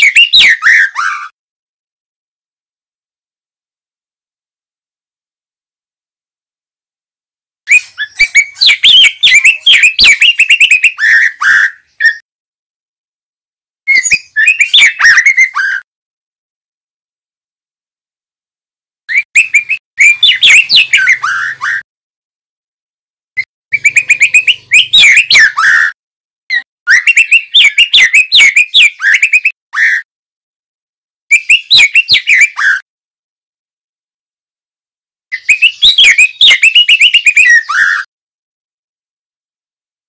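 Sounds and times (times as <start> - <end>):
bird singing whistled notes: 0.0 - 1.3, 7.7 - 12.2, 13.9 - 15.8, 19.1 - 21.8, 23.7 - 30.0, 31.3 - 32.8, 35.4 - 38.1.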